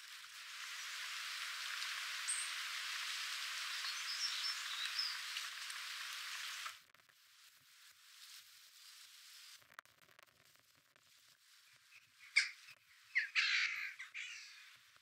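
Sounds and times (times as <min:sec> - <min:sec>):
quiet outdoor background: 0:00.0 - 0:15.0
steady hiss: 0:00.0 - 0:15.0
high bird chirps: 0:11.8 - 0:14.7.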